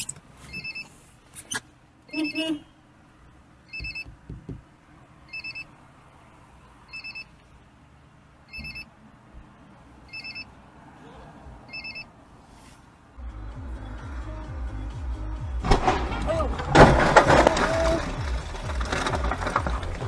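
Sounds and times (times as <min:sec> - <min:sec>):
high electronic beeps: 0:03.7 - 0:04.1.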